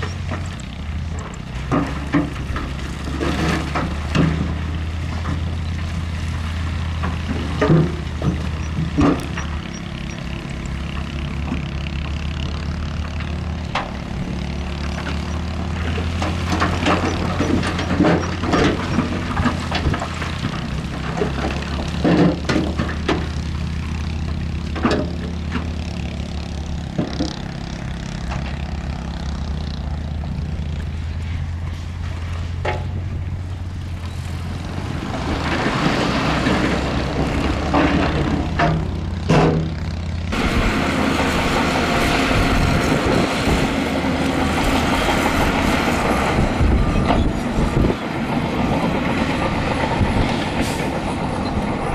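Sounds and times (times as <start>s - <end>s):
clanks of gravel and rock: 0.0s - 51.9s
diesel machine running: 0.0s - 51.9s
rushing noise: 40.3s - 51.9s.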